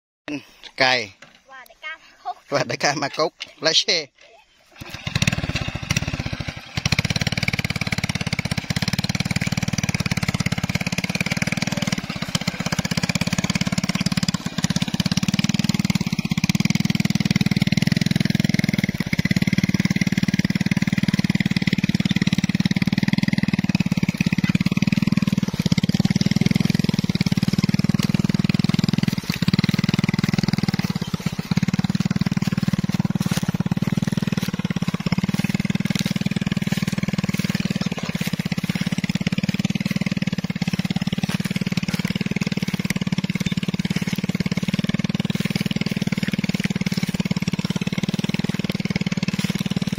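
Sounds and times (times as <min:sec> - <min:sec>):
motorcycle engine running under load: 0:04.7 - 0:49.9.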